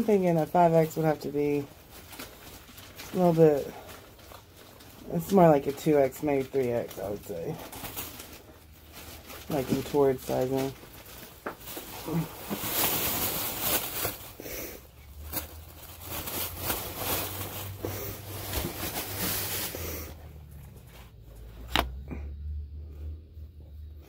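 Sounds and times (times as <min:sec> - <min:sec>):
cloth rustling and swishing: 0:15.2 - 0:21.8.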